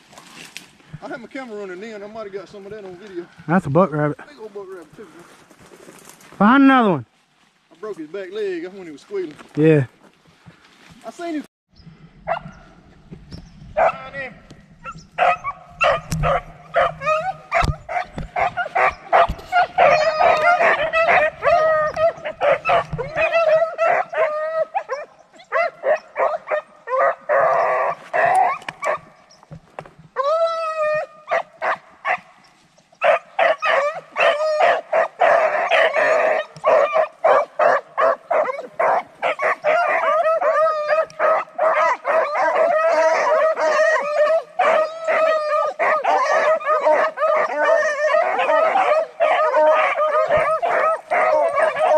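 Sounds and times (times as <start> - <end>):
hounds barking and baying: 12.2 - 12.9, 13.7 - 29.4, 30.1 - 51.9.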